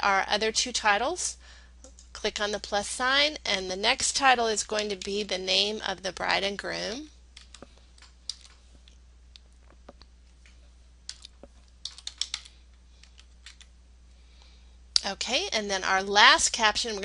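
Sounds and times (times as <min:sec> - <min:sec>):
typing on computer keyboard: 0:07.4 - 0:08.6, 0:11.1 - 0:13.7.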